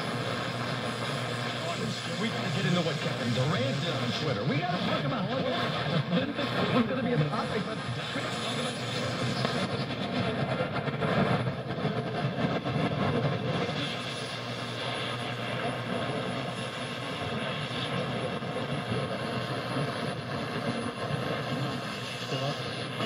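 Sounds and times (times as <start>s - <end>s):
radio static: 0.0s - 23.0s
faint steady whistles: 7.4s - 23.0s.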